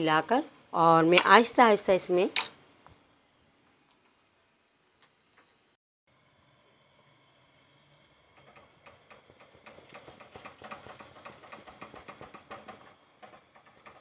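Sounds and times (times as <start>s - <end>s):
whisk clicking against pan: 8.4s - 14.0s.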